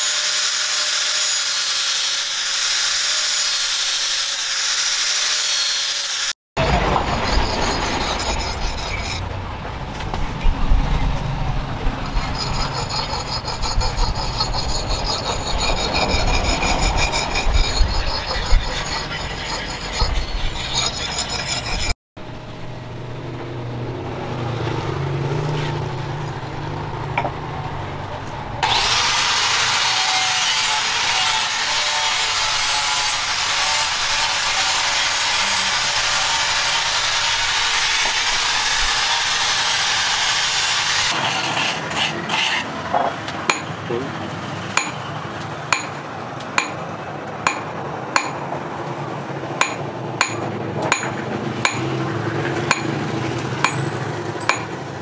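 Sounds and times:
blade scraping on whetstone: 0.0s - 9.3s, 12.0s - 22.0s, 29.8s - 42.7s.

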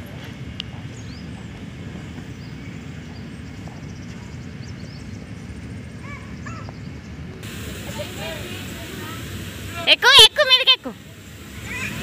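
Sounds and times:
birds chirping and calling: 0.9s - 7.2s
steady low rumble: 6.8s - 12.0s.

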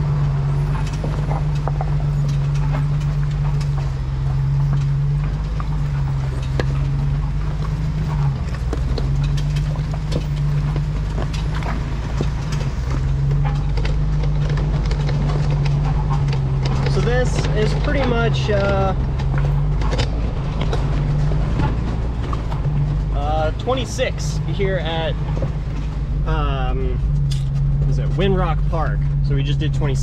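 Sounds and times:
clicks and knocks: 0.0s - 23.8s
engine running low and steady: 0.0s - 30.0s.

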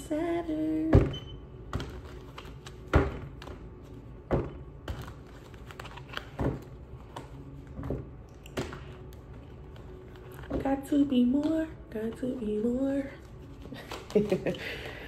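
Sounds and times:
cards being shuffled: 1.7s - 4.0s, 4.8s - 10.6s, 13.2s - 14.6s.

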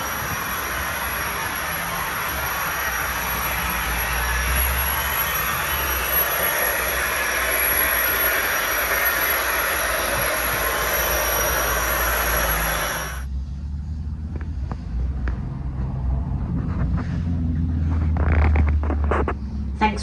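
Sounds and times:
model train rushing over track: 0.0s - 13.3s.

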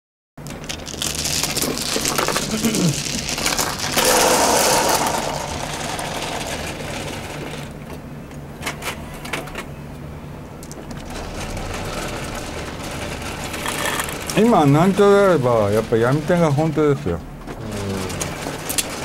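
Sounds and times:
mahjong table mechanical whir: 0.9s - 8.0s, 10.9s - 19.0s.

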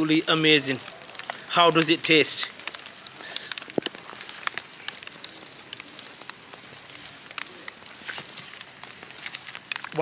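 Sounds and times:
rain falling: 0.0s - 10.0s
raindrops ticking on a surface: 0.0s - 10.0s.

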